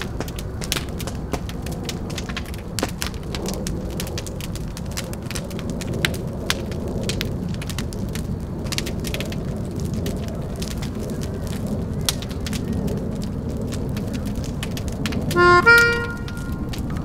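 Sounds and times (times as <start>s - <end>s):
fire crackling and popping: 0.0s - 17.0s
low rumble: 0.0s - 17.0s.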